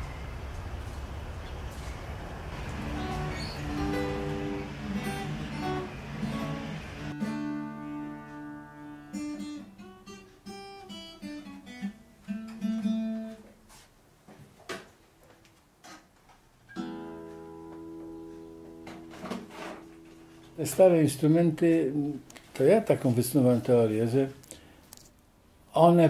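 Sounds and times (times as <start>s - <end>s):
acoustic guitar played slowly: 2.4s - 13.9s, 16.7s - 22.5s.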